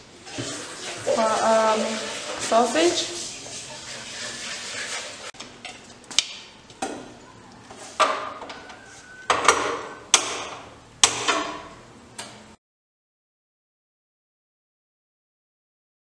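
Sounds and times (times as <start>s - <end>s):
kitchen utensils and dishes clinking: 0.3s - 5.9s.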